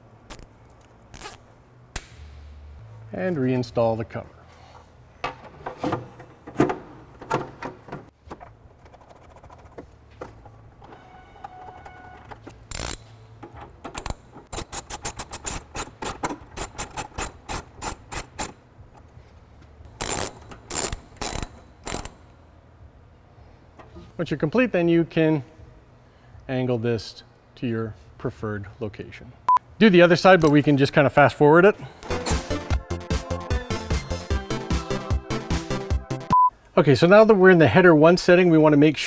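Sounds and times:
hand ratchet clicking: 0:12.7 - 0:13.1, 0:14.0 - 0:18.6, 0:19.9 - 0:22.2.

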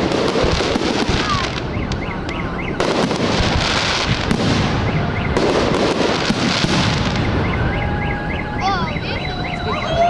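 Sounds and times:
firework cracks and crackling: 0:00.0 - 0:08.0.

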